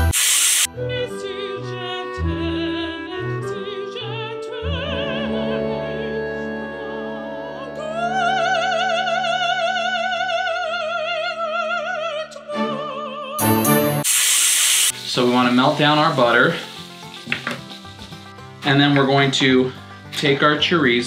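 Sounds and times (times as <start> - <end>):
opera singer with vibrato: 0.7 - 14.0.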